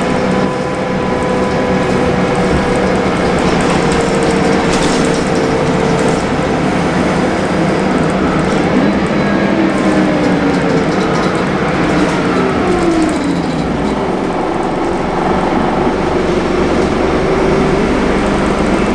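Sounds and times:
bus engine and road drone: 0.0 - 18.9
interior fittings rattling: 1.3 - 6.8.

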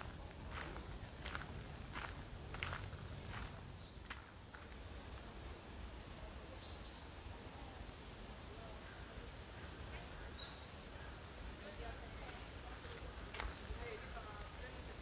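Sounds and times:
footsteps: 0.0 - 4.8
insects trilling: 0.0 - 15.0.

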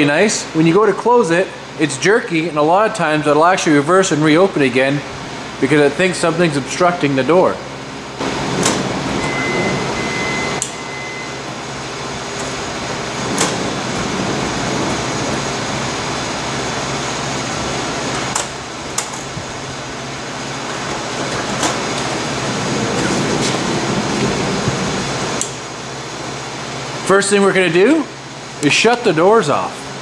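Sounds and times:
shop heater rushing: 0.0 - 30.0
power sliding door closing: 8.2 - 25.6
steady beep: 9.2 - 11.5.

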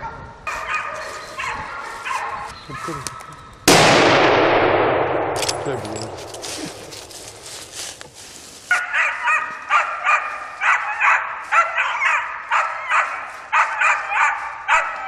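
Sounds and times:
dog barking: 0.0 - 3.2, 8.7 - 15.0.

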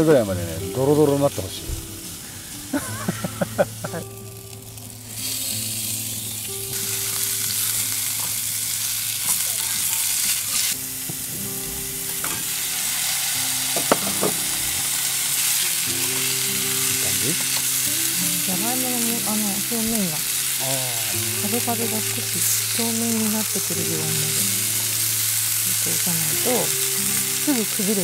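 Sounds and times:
meat sizzling in hot oil: 1.2 - 28.0
chopsticks stirring: 7.4 - 10.8.

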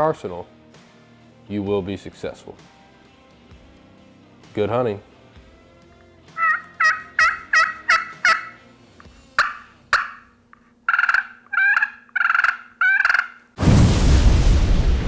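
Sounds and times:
turkey call yelps and clucks: 6.4 - 8.6, 9.4 - 10.3, 10.9 - 13.5.

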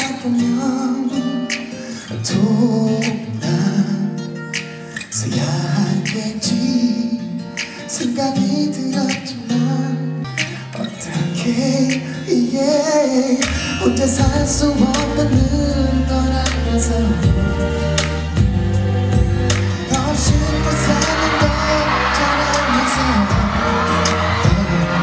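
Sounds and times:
man singing into a microphone: 0.0 - 18.1, 19.8 - 25.0
guitar: 0.0 - 25.0
deep bass line: 14.0 - 25.0.

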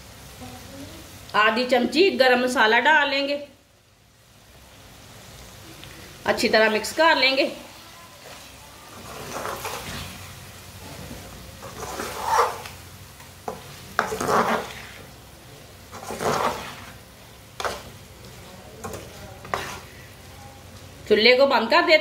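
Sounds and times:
curry sizzling faintly: 0.0 - 22.0
spoon scraping metal pan: 8.2 - 10.2, 11.6 - 12.8, 13.4 - 15.1, 15.9 - 17.0, 17.6 - 17.9, 18.8 - 20.1.

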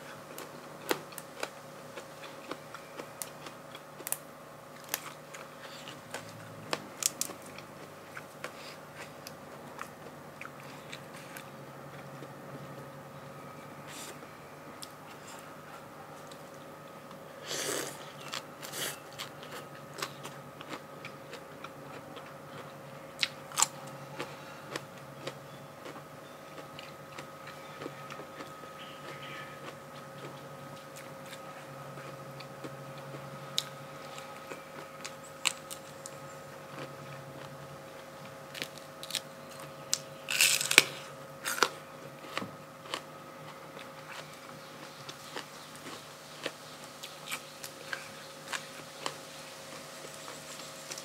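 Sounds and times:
faint steady hum: 0.0 - 51.0
food crunching: 0.3 - 12.3, 16.2 - 51.0
chewing: 17.7 - 37.6.

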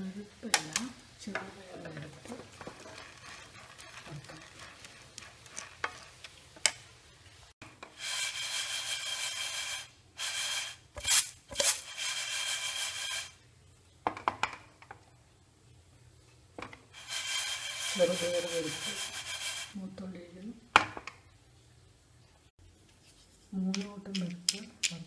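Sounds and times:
spatula scraping pan: 1.9 - 6.4, 7.8 - 13.4, 17.0 - 19.8.

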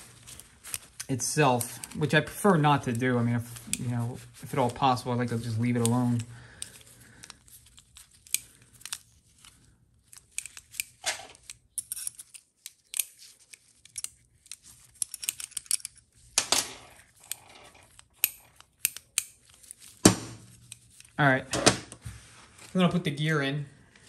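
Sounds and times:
rag crinkling: 0.0 - 23.0
small metal clicks: 5.7 - 20.0.

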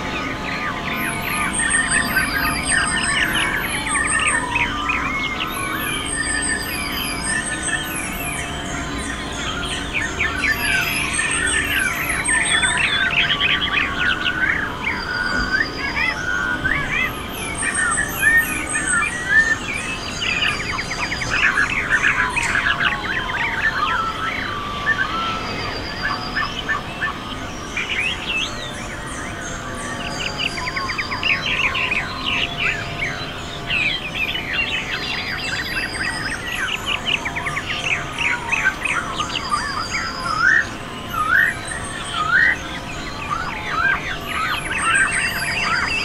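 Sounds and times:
birds chirping and calling: 0.0 - 46.0.

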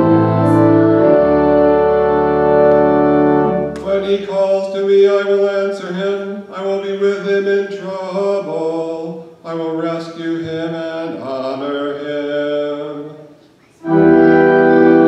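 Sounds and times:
man chanting: 3.8 - 15.0.

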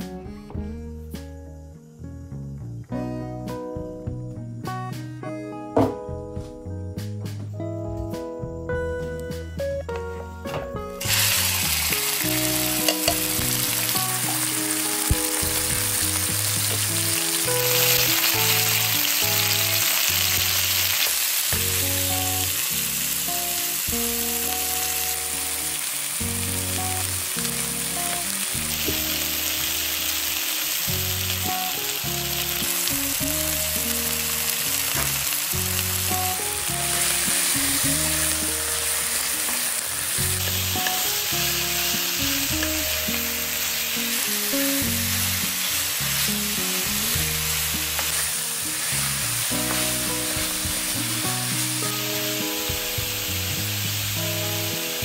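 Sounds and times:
background music: 0.0 - 55.0
meat sizzling in oil: 11.0 - 55.0.

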